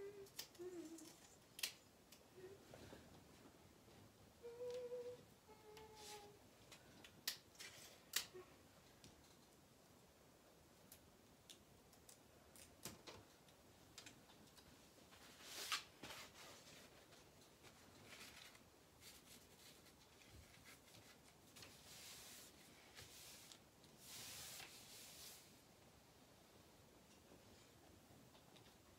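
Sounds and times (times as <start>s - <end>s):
picture frame rustling and scraping: 15.1s - 25.6s.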